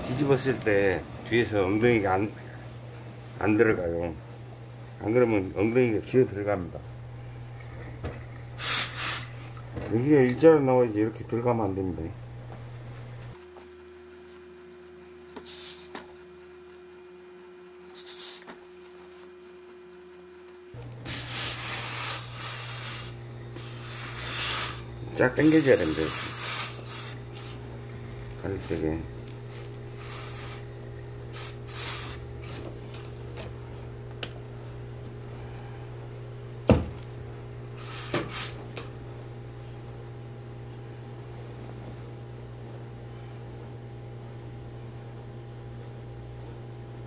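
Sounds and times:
steady low hum: 0.0s - 47.0s
steam iron hissing: 8.6s - 9.6s, 15.4s - 15.9s, 18.0s - 18.5s, 21.0s - 33.0s, 37.7s - 38.7s.

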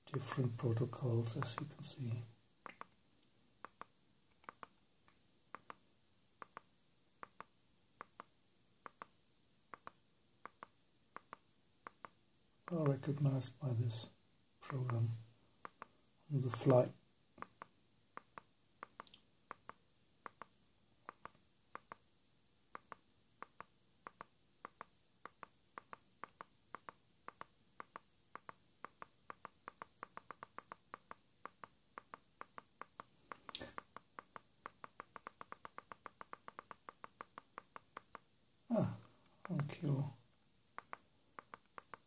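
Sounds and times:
remote control buttons clicking: 3.6s - 4.7s, 40.8s - 42.0s.

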